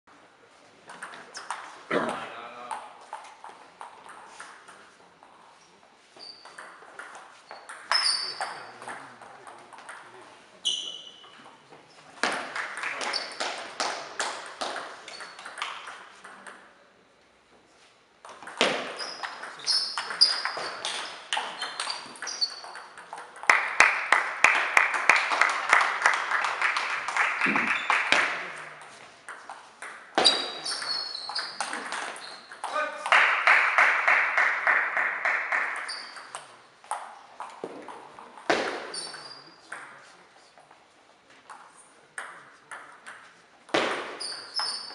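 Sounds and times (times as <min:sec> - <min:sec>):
shoes squeaking on floor: 0:05.4 - 0:09.1, 0:10.5 - 0:12.2, 0:13.0 - 0:13.6, 0:15.0 - 0:15.6, 0:18.6 - 0:23.0, 0:27.4 - 0:29.1, 0:30.2 - 0:32.9, 0:35.8 - 0:36.6, 0:38.5 - 0:39.7, 0:44.1 - 0:44.9.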